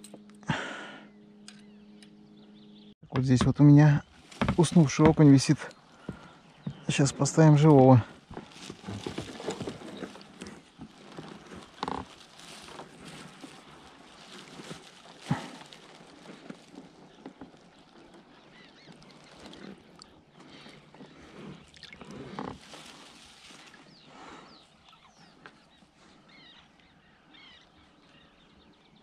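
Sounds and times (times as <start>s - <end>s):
fishing gear rustling and clicking: 4.1s - 26.0s.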